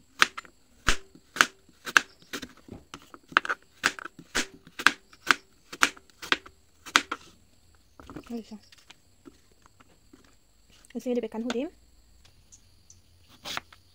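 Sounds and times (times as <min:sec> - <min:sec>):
knife chopping on plastic board: 0:00.2 - 0:02.6, 0:03.3 - 0:07.2.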